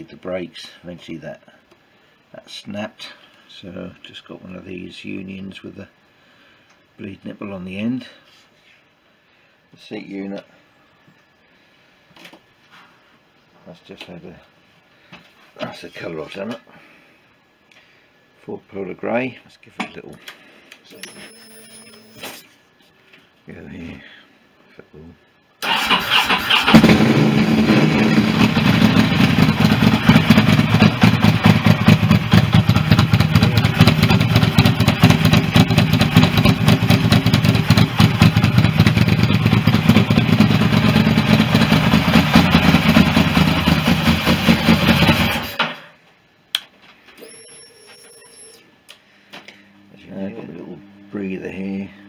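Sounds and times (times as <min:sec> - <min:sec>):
motorcycle engine running: 0:26.7 - 0:45.4.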